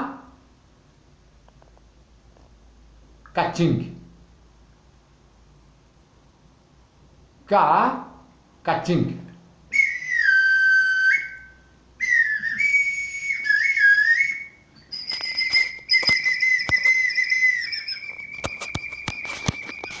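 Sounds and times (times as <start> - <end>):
handheld whistle notes: 9.7 - 20.0.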